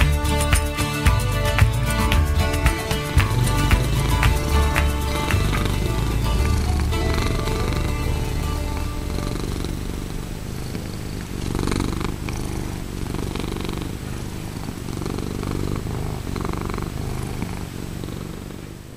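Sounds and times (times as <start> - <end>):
cat purring: 1.8 - 18.9.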